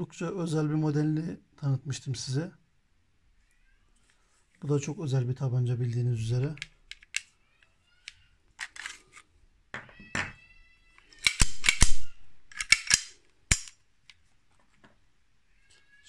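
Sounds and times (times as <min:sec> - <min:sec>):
blank pistol slide clacking: 0:11.2 - 0:13.8.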